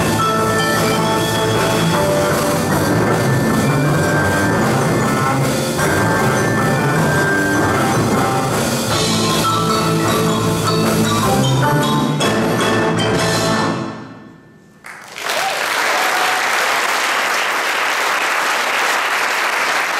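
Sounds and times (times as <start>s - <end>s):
marimbas in fast runs: 0.0s - 13.4s
drum kit: 0.0s - 14.1s.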